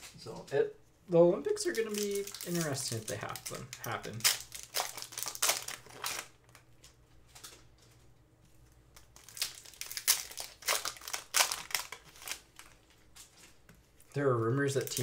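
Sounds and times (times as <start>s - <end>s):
foil wrapper crinkling: 1.5s - 7.7s, 8.9s - 13.6s, 14.6s - 15.0s.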